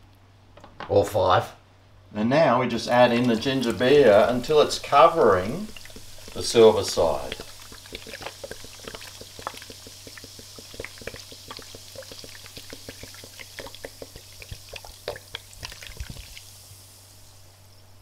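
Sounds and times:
liquid pouring into a pot: 0:02.8 - 0:17.3
small pops and splashes: 0:03.1 - 0:16.6.

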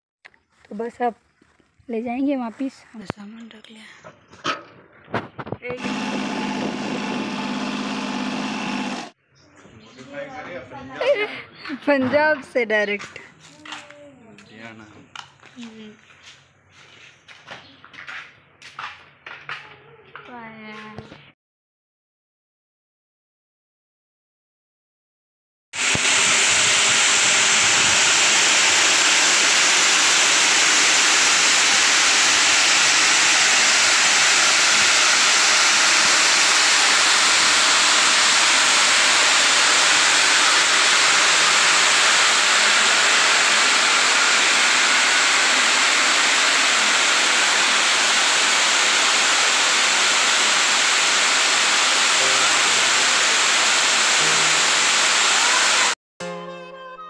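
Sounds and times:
grain-cleaning machine running: 0:05.7 - 0:09.2, 0:25.8 - 0:56.0
beans pouring down metal chute: 0:25.8 - 0:55.9.

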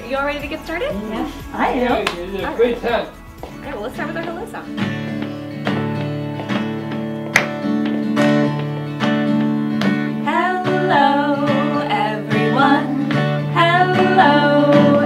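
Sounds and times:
acoustic guitar strumming: 0:00.0 - 0:15.0
person singing: 0:10.3 - 0:15.0.

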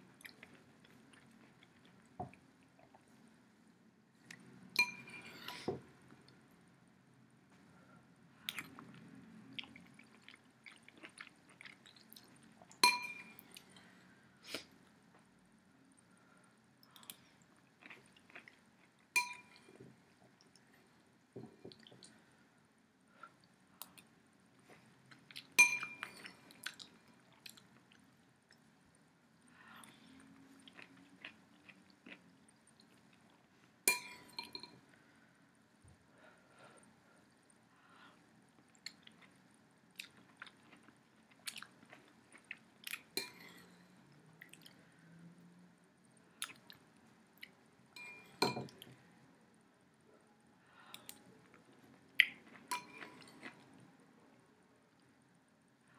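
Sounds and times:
soft eating sounds: 0:00.0 - 0:06.5, 0:07.4 - 0:55.9
spoon clinking against bowl: 0:04.8 - 0:05.6, 0:12.8 - 0:13.4, 0:19.2 - 0:19.6, 0:25.6 - 0:26.2, 0:33.9 - 0:34.8, 0:48.0 - 0:48.7.

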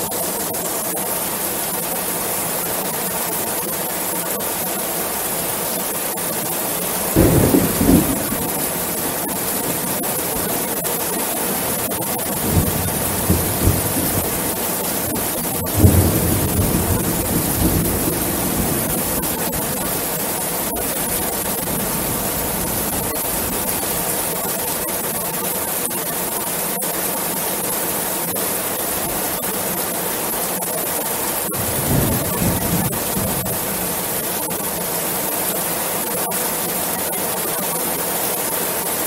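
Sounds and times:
rain on a metal roof: 0:00.0 - 0:39.0
thunder rumbling: 0:07.1 - 0:24.1, 0:31.5 - 0:34.1.

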